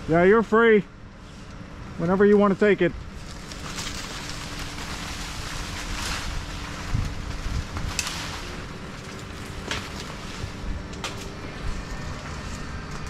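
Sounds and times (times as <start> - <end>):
crane engine humming: 0.0 - 13.0
wind noise on microphone: 5.5 - 8.8.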